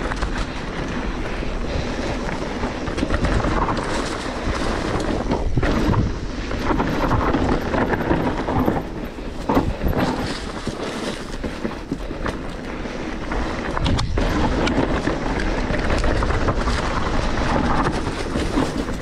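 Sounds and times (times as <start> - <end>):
bike rattling: 0.0 - 19.0
bike tyres rolling over stones: 0.0 - 19.0
wind on microphone: 0.0 - 19.0.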